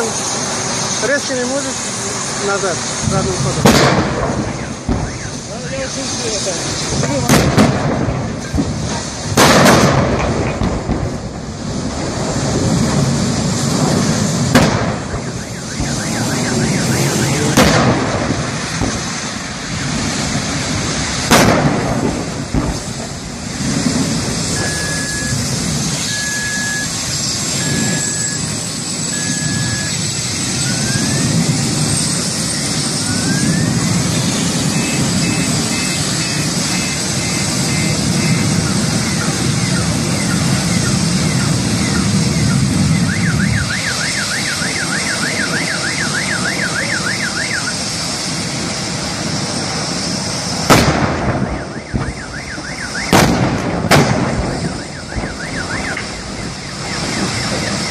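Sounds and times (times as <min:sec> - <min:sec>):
steady rushing noise: 0:00.0 - 0:57.9
gas cylinders exploding: 0:02.4 - 0:57.9
short electronic beeps: 0:24.5 - 0:25.4, 0:26.0 - 0:27.0, 0:27.6 - 0:30.0, 0:34.7 - 0:38.5.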